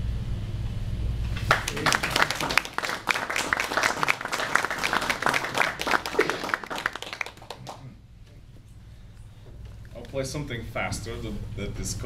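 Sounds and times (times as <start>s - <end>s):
audience applauding: 1.4s - 7.9s.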